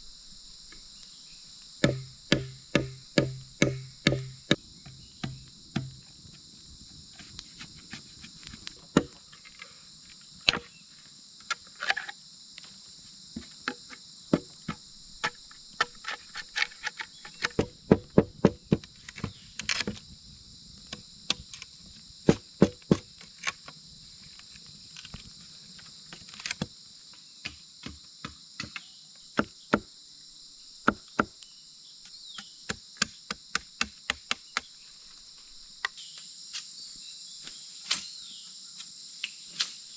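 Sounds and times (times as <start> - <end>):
insects droning: 0.0 - 39.9
machete chopping bamboo: 1.8 - 6.0, 8.8 - 9.2, 10.5 - 10.8, 13.7 - 20.0, 22.3 - 23.2, 30.9 - 31.4, 32.4 - 34.7.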